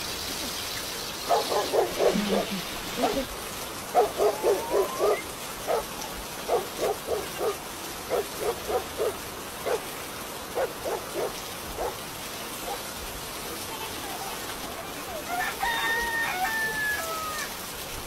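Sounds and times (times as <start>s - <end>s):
puppy yapping: 4.0s - 5.9s.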